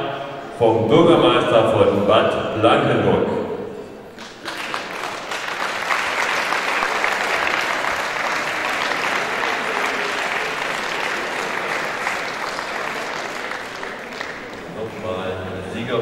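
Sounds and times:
audience applauding: 4.2 - 16.0.

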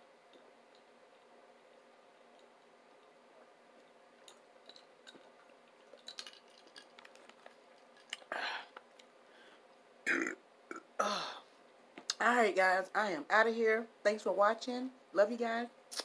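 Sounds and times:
woman burping: 10.1 - 11.4.

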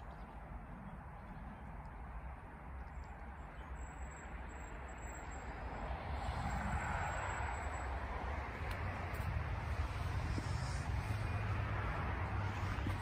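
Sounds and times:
wind buffeting microphone: 5.9 - 13.0.

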